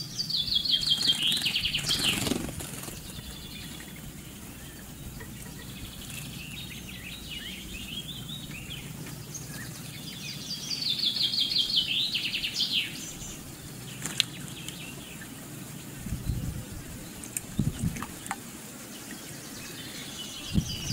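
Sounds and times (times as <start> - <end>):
bird trill: 0.0 - 16.5
low background hum: 0.0 - 20.9
songbirds chirping and singing: 0.0 - 20.9.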